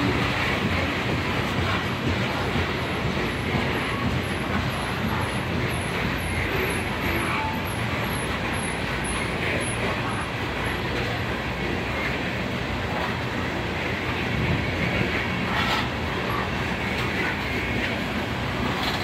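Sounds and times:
train wheels rolling on rails: 0.0s - 19.0s.

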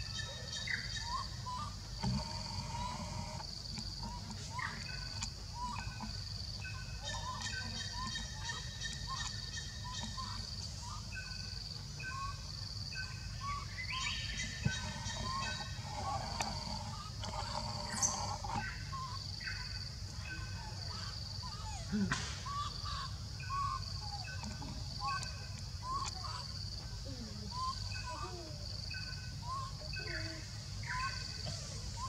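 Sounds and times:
birds and insects chirping: 0.0s - 32.0s.

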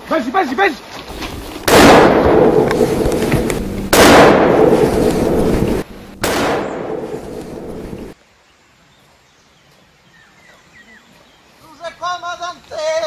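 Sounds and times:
loud explosion-like blasts: 1.4s - 8.2s.

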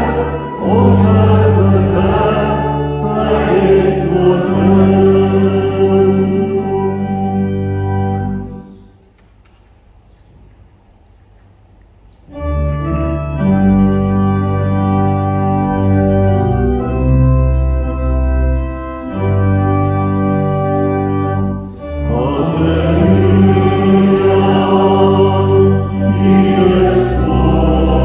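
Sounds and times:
congregation singing: 0.0s - 8.7s, 19.1s - 28.0s
organ playing sustained chords: 0.0s - 9.1s, 12.1s - 28.0s.

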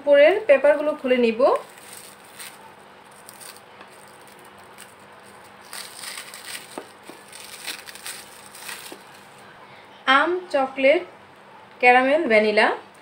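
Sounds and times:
cling film crinkling: 0.7s - 9.4s.

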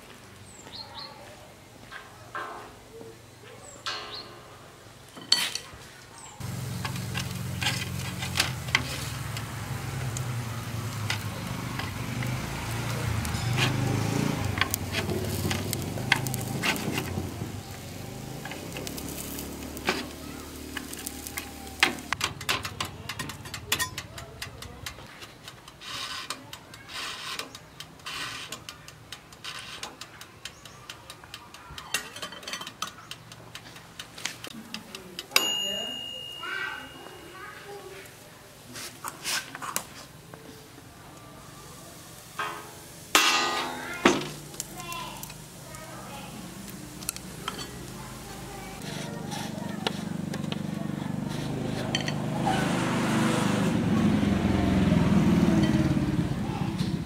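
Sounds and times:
food sizzling in toaster oven: 6.4s - 22.2s, 40.8s - 50.4s
chopsticks clicking and scraping: 6.7s - 35.4s, 38.8s - 40.6s, 43.9s - 52.6s.

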